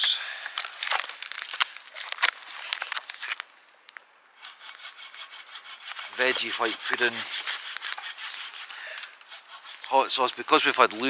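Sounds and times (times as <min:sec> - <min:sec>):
plastic packaging crinkling: 0:00.4 - 0:04.0.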